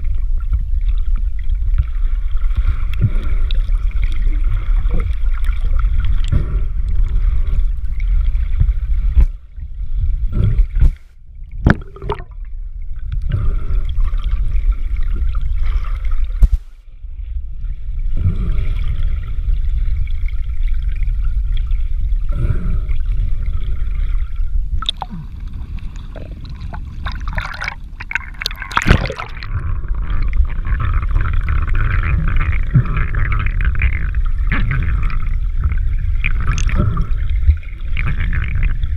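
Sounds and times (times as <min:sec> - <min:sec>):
underwater rush of water: 0:00.0 - 0:16.8, 0:17.7 - 0:38.9
knocks and gurgles: 0:02.8 - 0:09.4, 0:10.0 - 0:12.4, 0:24.7 - 0:38.9.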